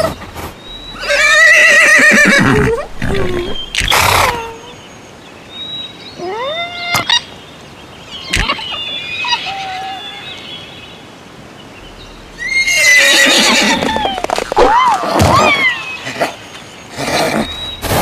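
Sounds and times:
horse neighing: 1.0s - 4.5s, 12.4s - 17.5s.

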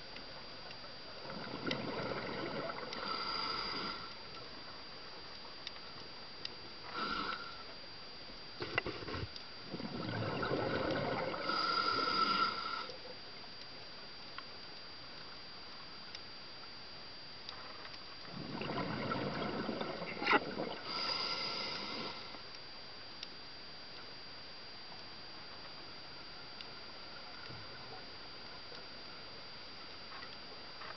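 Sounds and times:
diver breathing through regulator: 1.9s - 4.2s, 6.8s - 7.6s, 10.8s - 12.9s, 20.7s - 22.4s.

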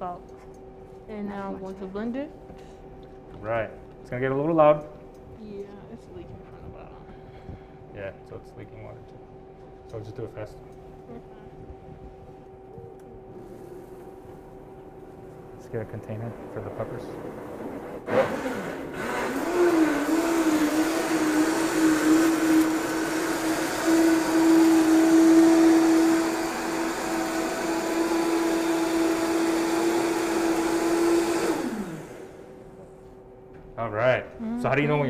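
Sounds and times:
blender motor whining: 18.1s - 32.4s.

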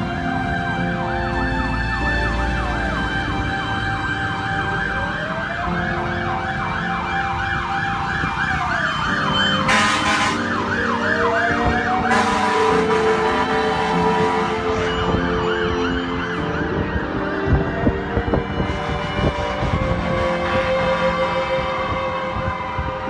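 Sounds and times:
siren wailing: 0.0s - 23.0s.

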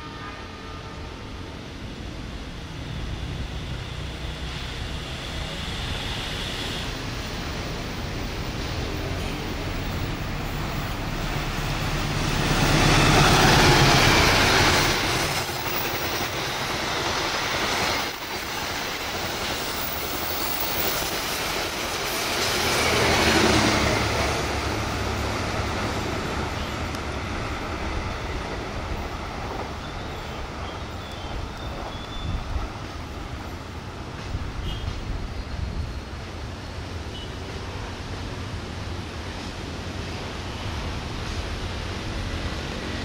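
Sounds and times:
diesel locomotive engine drone: 0.0s - 43.0s.

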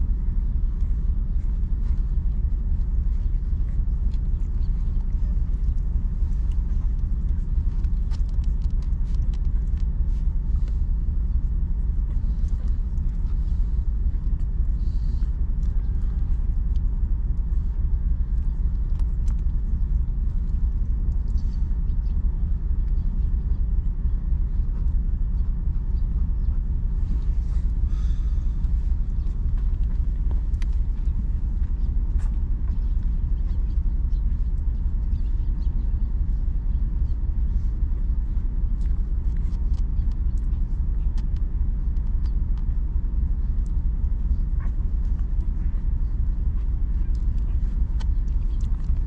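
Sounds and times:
steady low rumble: 0.0s - 49.0s
puppies suckling clicks: 0.8s - 10.9s, 15.3s - 23.8s, 28.6s - 49.0s.

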